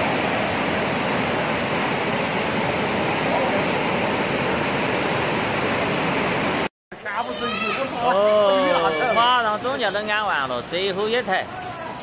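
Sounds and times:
floodwater rushing: 0:00.0 - 0:12.0.

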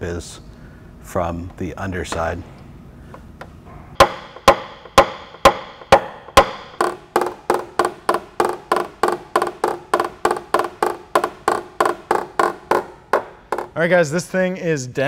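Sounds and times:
hammer tapping metal punch: 0:04.0 - 0:13.8.

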